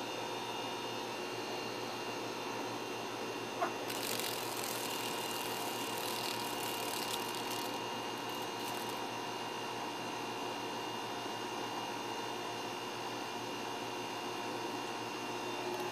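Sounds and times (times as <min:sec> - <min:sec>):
steady hum and hiss: 0:00.0 - 0:15.9
dragonfly wings buzzing against lamp: 0:03.5 - 0:09.1.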